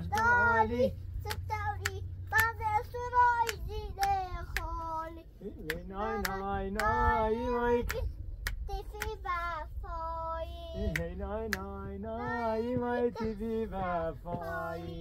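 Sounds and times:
hand claps: 0.2 - 0.4, 1.3 - 2.6, 3.4 - 4.8, 7.8 - 9.2, 10.9 - 11.7.

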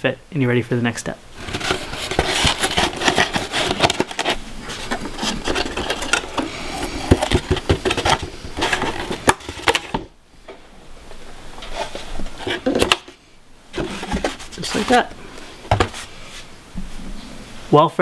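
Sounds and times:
rubbing and scraping of foam board: 1.4 - 10.0, 11.6 - 13.1, 13.7 - 17.4.

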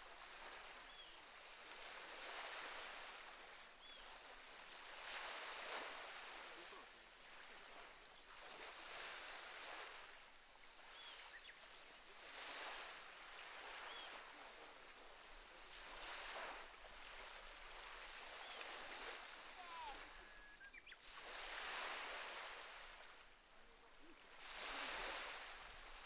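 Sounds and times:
sea waves washing onto rocky shore: 21.1 - 26.0.

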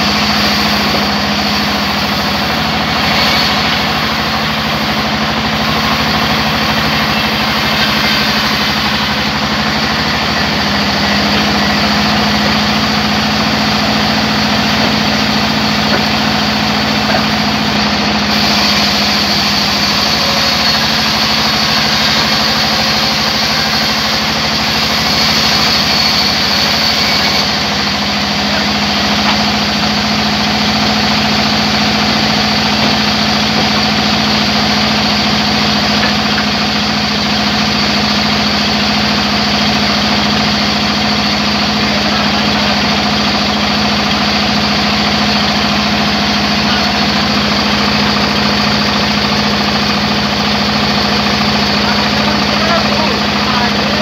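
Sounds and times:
band saw cutting wood: 0.0 - 54.0.

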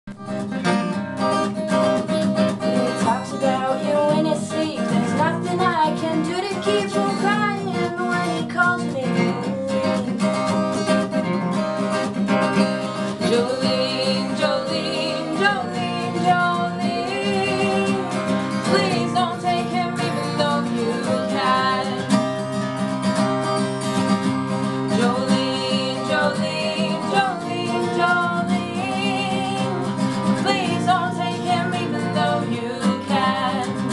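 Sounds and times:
acoustic guitar: 0.0 - 33.9
women singing together: 2.2 - 10.4, 13.0 - 22.4, 24.8 - 33.9.

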